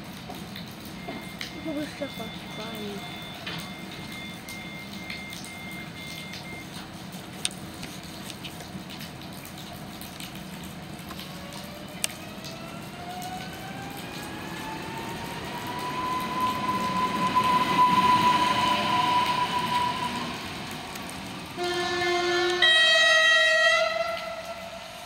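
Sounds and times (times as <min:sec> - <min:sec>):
rail rumble: 0:11.4 - 0:25.0
two-tone train horn: 0:15.8 - 0:20.4, 0:21.6 - 0:25.0.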